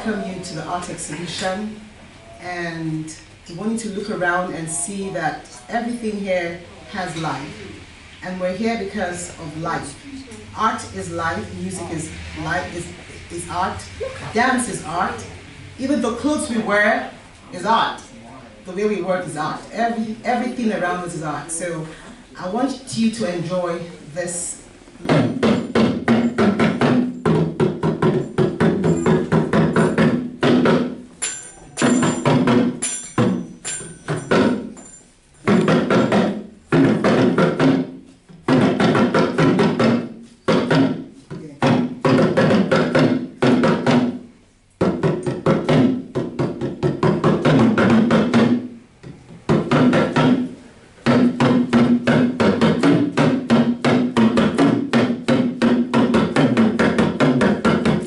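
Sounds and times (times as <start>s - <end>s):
handheld drum struck with stick: 25.0s - 34.7s, 44.8s - 48.7s, 49.5s - 58.0s.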